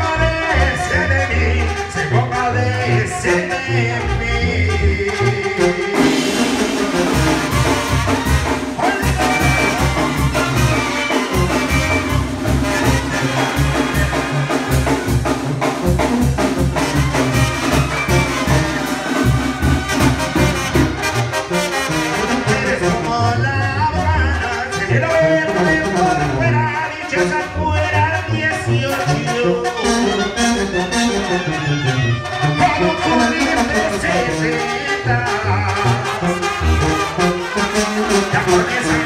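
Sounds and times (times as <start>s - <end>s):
person singing: 0.0s - 6.5s, 8.8s - 11.6s, 12.6s - 14.4s, 22.3s - 36.3s, 37.6s - 39.0s
brass band playing: 0.0s - 39.0s
drums with steady beat: 6.0s - 21.6s.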